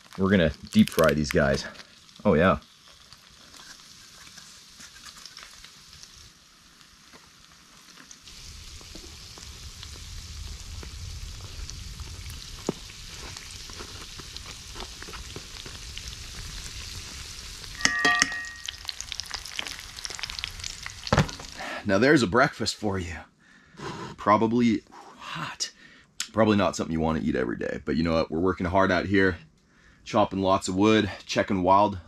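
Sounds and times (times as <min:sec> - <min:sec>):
food sizzling in oil: 0:00.0 - 0:21.6
metallic clink: 0:17.8 - 0:18.9.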